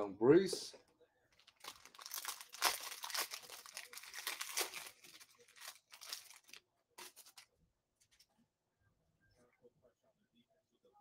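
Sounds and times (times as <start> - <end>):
foil wrapper tearing and crinkling: 1.4 - 7.4.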